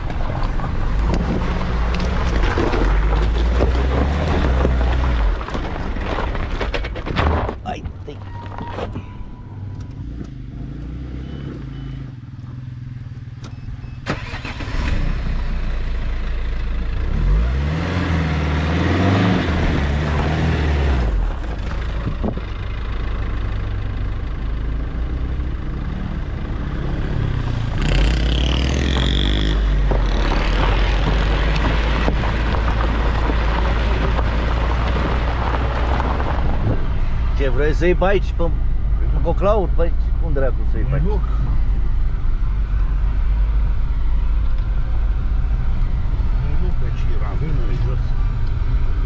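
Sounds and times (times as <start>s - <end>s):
tyres on gravel: 0.0s - 9.4s, 27.2s - 45.6s
car engine revving: 14.0s - 16.2s, 17.0s - 22.2s, 25.1s - 49.0s.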